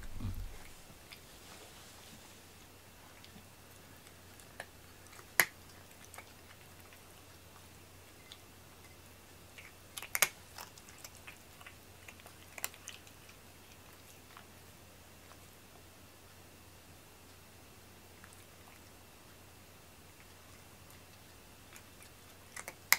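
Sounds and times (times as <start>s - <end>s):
cat eating crunches and clicks: 3.0s - 16.4s, 18.0s - 22.9s.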